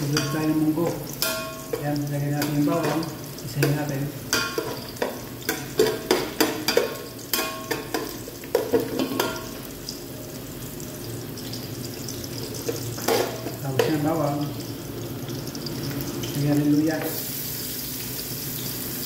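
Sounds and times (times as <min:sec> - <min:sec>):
garlic frying in oil: 0:00.0 - 0:19.0.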